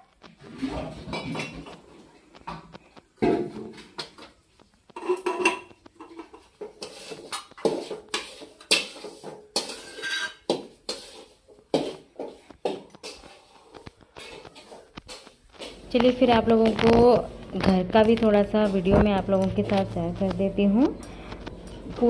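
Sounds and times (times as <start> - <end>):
metal ladle scraping pot: 4.9 - 11.5.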